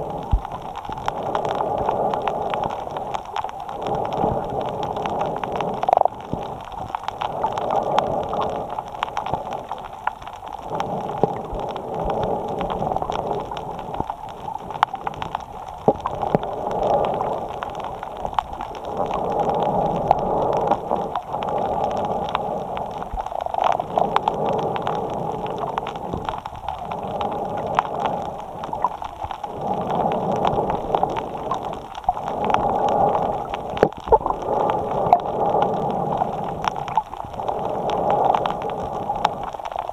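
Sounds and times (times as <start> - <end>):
breathing through a snorkel: 0.0 - 15.4, 16.0 - 39.9.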